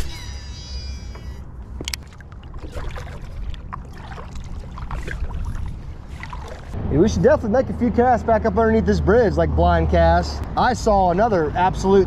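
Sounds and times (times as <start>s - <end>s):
steady low rumble: 1.4s - 10.9s
paddle splashing in water: 1.8s - 6.8s.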